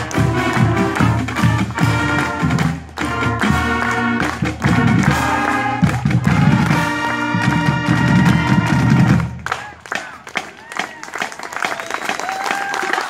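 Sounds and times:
brass section holding chords: 0.0s - 9.4s.

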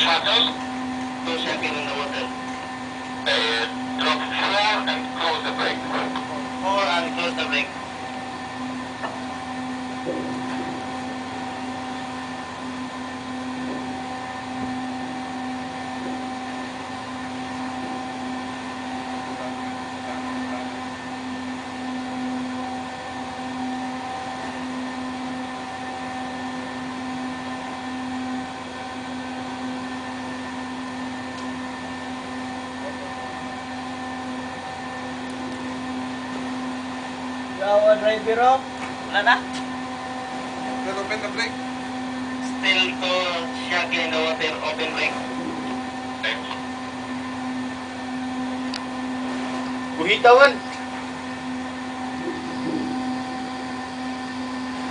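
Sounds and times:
machinery humming drone: 0.0s - 54.9s.

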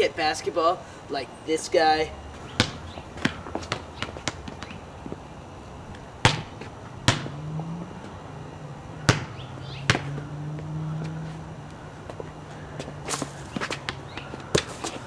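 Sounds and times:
basketball bouncing on asphalt: 2.4s - 5.2s, 6.2s - 8.2s, 9.0s - 11.4s, 12.0s - 15.0s.

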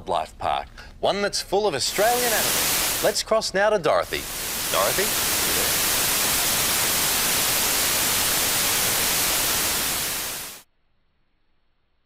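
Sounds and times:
television static hiss: 1.8s - 10.6s.

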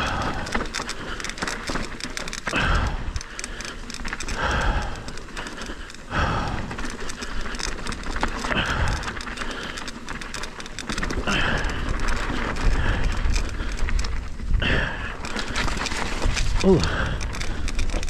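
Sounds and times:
mountain bike clicking and rattling: 0.0s - 18.0s
person breathing hard: 0.0s - 18.0s.

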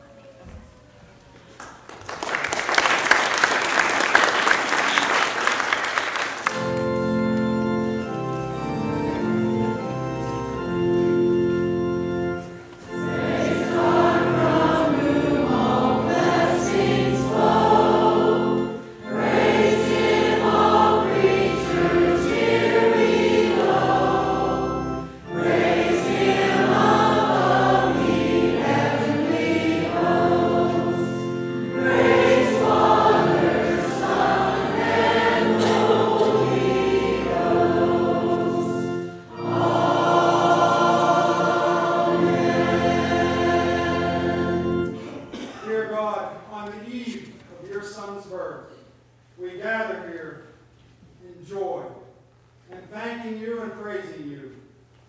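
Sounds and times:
choir singing a hymn: 6.5s - 46.0s.

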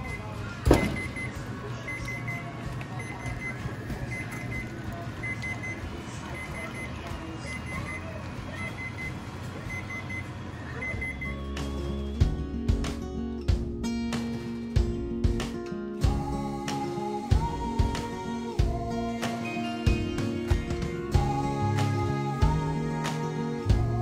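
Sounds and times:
oven alert beeps: 0.0s - 12.4s.

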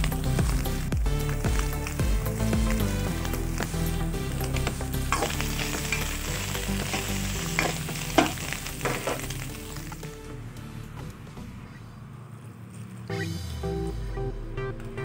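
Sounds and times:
food sizzling in a wok: 0.0s - 10.2s
spatula scraping and knocking pan: 4.5s - 6.2s, 6.8s - 9.5s.

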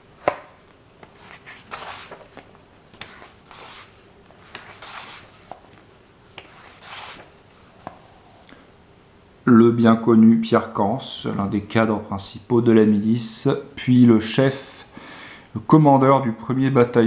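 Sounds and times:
book pages turning: 0.0s - 8.4s.

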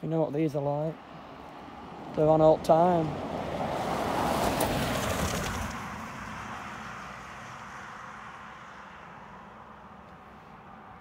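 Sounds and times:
car driving past: 3.1s - 11.0s.

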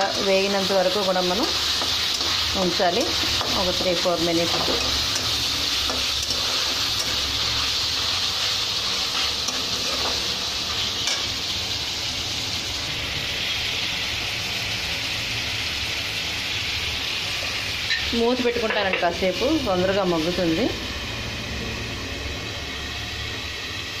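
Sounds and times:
chicken sizzling in oil: 0.0s - 24.0s
spatula scraping a pan: 1.5s - 11.4s.

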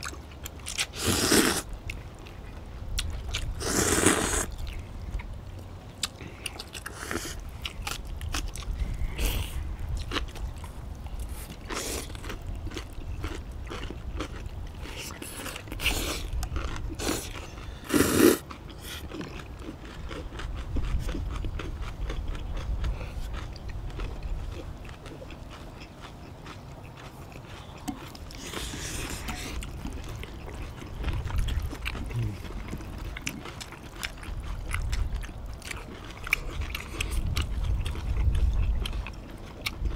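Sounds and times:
chewing: 0.0s - 39.9s
slurping noodles: 0.8s - 1.7s, 3.6s - 4.6s, 16.9s - 19.0s.

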